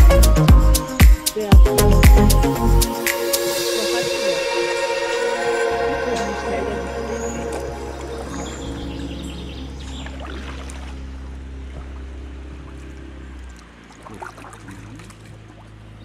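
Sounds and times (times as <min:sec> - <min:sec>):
background music: 0:00.0 - 0:10.0
paddles dipping and dripping water: 0:05.5 - 0:16.0
paddle splashes: 0:06.1 - 0:16.0
bird chirps: 0:06.2 - 0:10.7.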